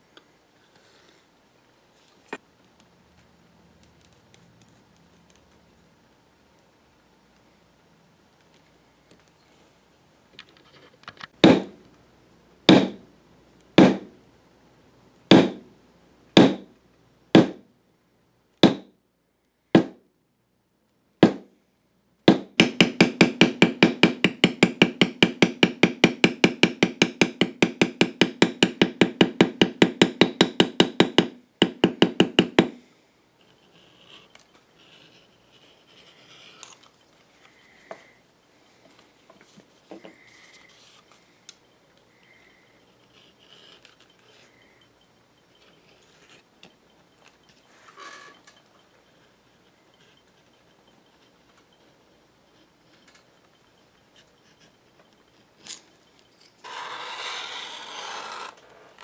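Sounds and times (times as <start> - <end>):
mallet striking leather stamp: 11.4 - 11.8, 12.7 - 13.1, 13.8 - 14.2, 15.3 - 15.7, 16.4 - 16.7, 17.4 - 17.7, 18.6 - 18.9, 19.8 - 20.0, 21.2 - 21.5, 22.3 - 32.8
faint handling sounds: 32.8 - 59.0.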